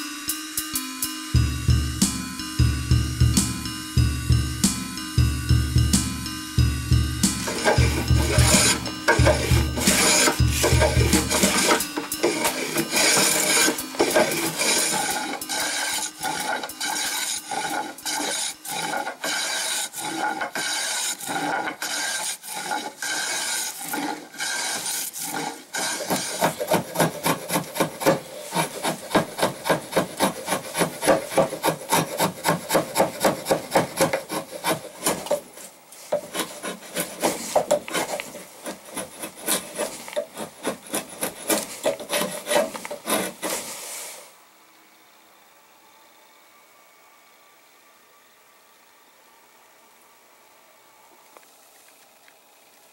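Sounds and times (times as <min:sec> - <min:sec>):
hand plane shaving wood: 0:07.2 - 0:44.2
rasping strokes on wood: 0:07.2 - 0:44.2.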